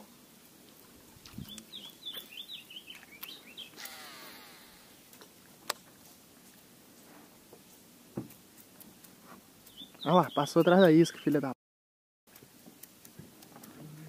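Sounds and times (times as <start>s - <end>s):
bird chirping: 1.2s - 5.0s, 9.6s - 11.6s
fishing reel spool whirring: 3.7s - 5.0s.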